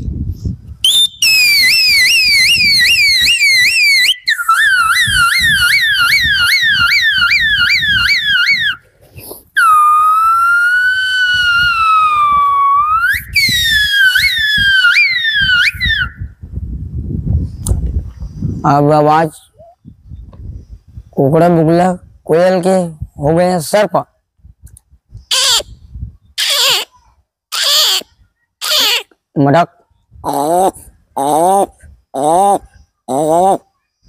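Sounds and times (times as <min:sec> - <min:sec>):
man whistling like a siren: 0:00.8 - 0:08.8, 0:09.6 - 0:16.4.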